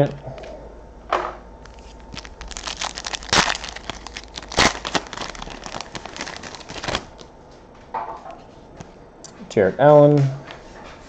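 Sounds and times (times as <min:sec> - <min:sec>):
foil wrapper tearing and crinkling: 0:01.7 - 0:07.2.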